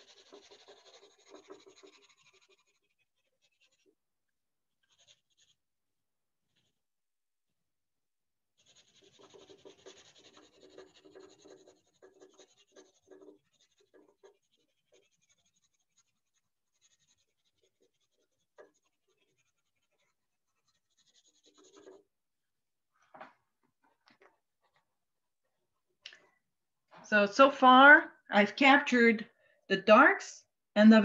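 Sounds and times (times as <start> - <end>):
pencil scratching on paper: 0.0 - 4.0, 4.7 - 5.7, 6.4 - 6.9, 8.5 - 22.2.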